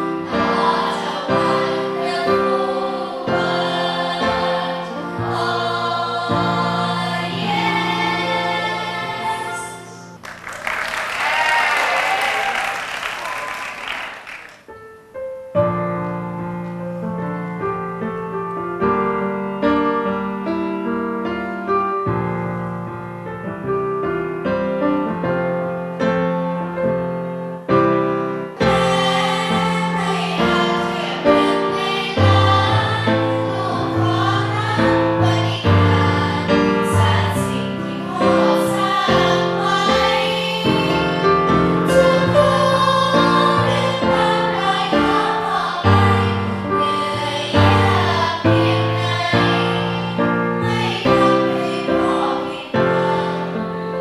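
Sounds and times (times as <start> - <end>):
girls' choir singing in parts: 0.0 - 10.2, 28.6 - 53.6
piano playing slowly: 0.0 - 10.5, 14.6 - 54.0.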